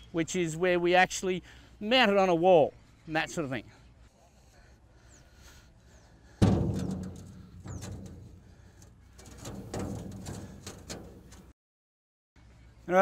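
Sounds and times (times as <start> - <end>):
birds chirping: 0.0 - 6.4, 7.0 - 9.3
equipment knocks and clunks: 6.4 - 11.5.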